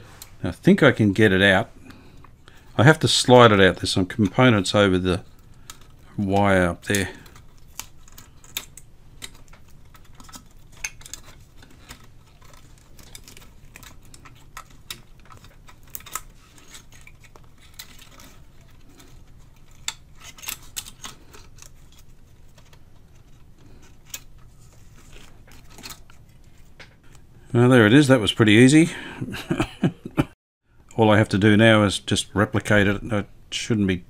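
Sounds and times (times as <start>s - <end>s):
wires clicking and scraping on metal: 1.5s - 27.2s.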